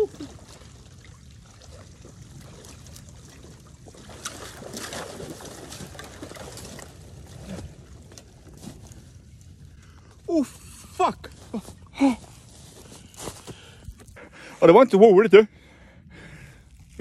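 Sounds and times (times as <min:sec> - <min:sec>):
sharp splashes: 0:00.0 - 0:08.0
shallow water sloshing: 0:00.0 - 0:10.3.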